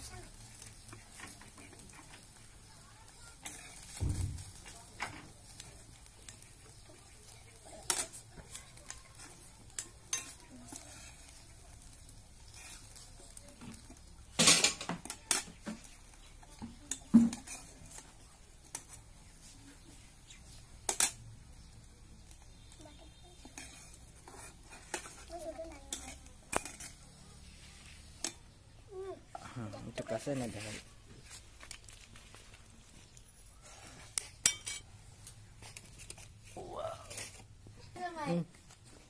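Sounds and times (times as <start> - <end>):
metal spatula clinking on wok: 34.4 - 34.9.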